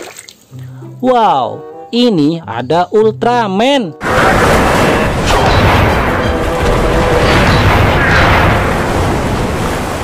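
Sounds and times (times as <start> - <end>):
battle sound effects: 4.0 - 9.7.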